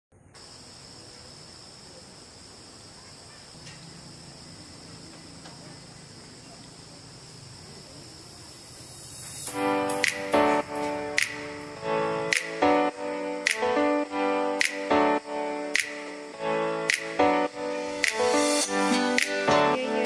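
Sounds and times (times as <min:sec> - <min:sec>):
faint low hum: 0:00.1 - 0:08.9
night insects chirring: 0:00.1 - 0:20.0.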